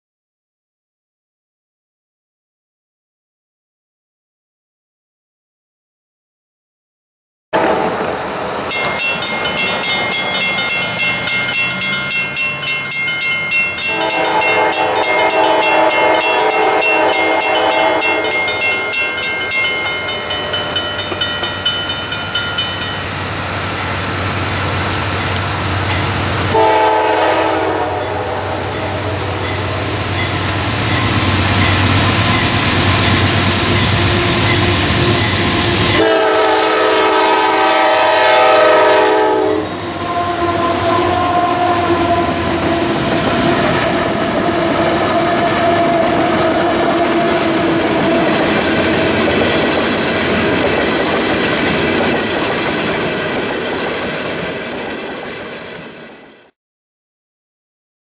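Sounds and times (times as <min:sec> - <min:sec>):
train air horn blasts: 0:07.6 - 0:08.0, 0:13.8 - 0:19.0, 0:26.5 - 0:29.9, 0:35.4 - 0:47.7
locomotive engine and wheel noise: 0:07.6 - 0:26.6, 0:39.6 - 0:56.4
crossing bell ringing: 0:08.6 - 0:36.5.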